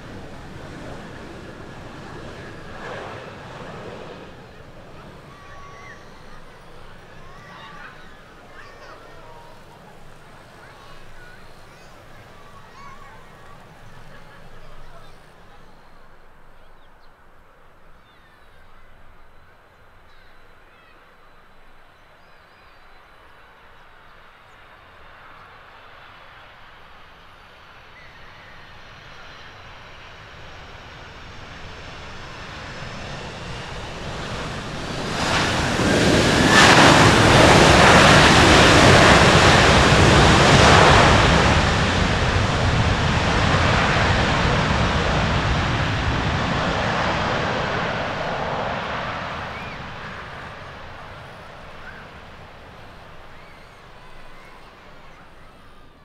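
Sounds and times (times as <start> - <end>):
rushing airflow: 0.0 - 17.7, 26.7 - 56.0
jet airliner landing: 0.0 - 56.0.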